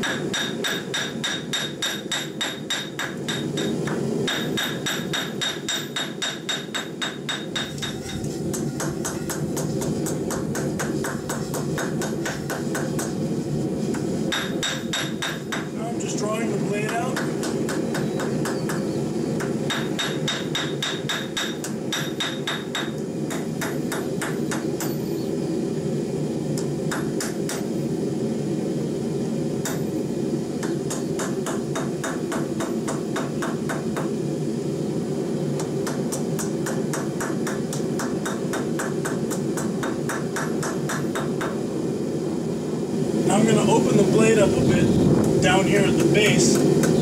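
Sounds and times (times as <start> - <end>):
hammer striking hot steel on anvil: 0.0 - 13.2, 13.9 - 25.2, 26.6 - 27.7, 29.6 - 30.0, 30.6 - 34.2, 35.5 - 41.7
low rumble: 44.4 - 45.7.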